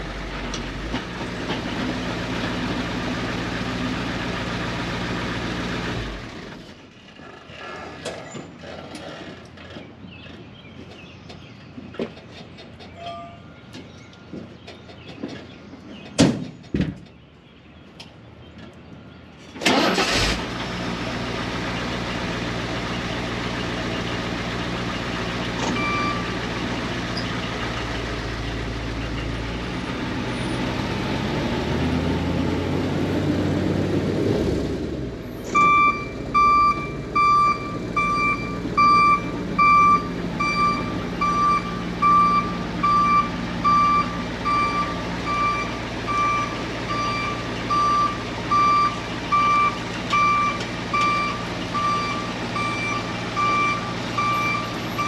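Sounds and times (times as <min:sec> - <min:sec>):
diesel truck engine running: 0:00.0 - 0:07.7, 0:19.6 - 0:55.0
backup alarm beeping: 0:35.6 - 0:55.0.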